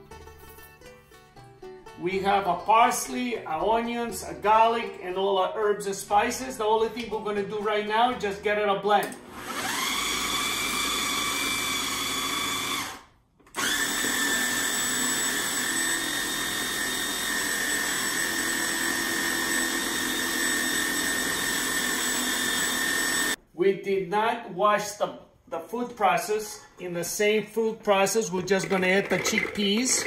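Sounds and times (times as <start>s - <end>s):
food processor motor whining: 9.1s - 23.4s.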